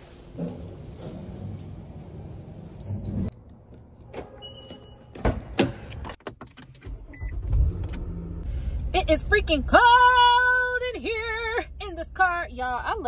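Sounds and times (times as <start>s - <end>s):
elevator hum: 0.0s - 5.2s.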